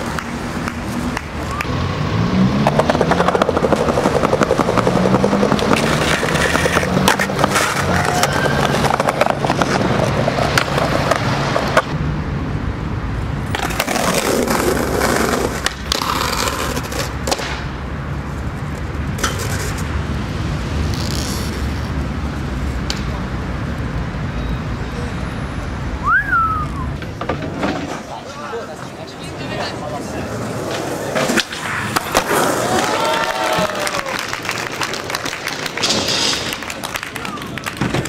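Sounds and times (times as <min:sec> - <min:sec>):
skateboard clacks: 0:00.0 - 0:01.8, 0:02.6 - 0:12.0, 0:13.4 - 0:17.7, 0:22.8 - 0:23.2, 0:30.3 - 0:38.0
skateboard wheels rolling on pavement: 0:00.0 - 0:24.5, 0:25.6 - 0:38.0.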